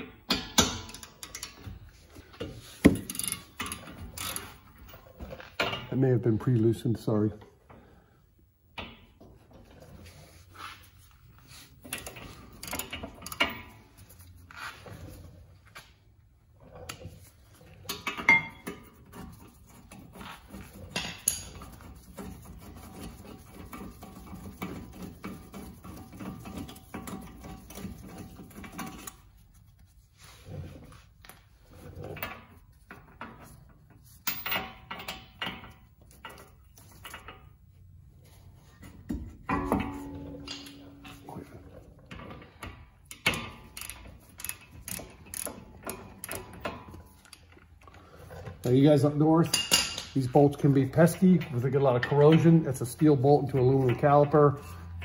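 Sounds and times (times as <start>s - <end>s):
hand tools clicking and clanking: 0.0s - 6.0s, 11.6s - 14.4s, 17.7s - 29.3s, 38.8s - 55.0s
ratchet turning: 43.1s - 46.6s.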